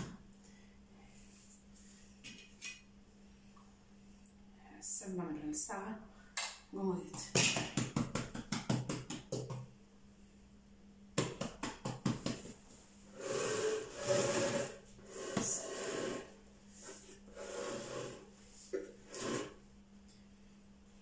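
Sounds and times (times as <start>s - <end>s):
dough rubbing across table: 13.2s - 19.6s.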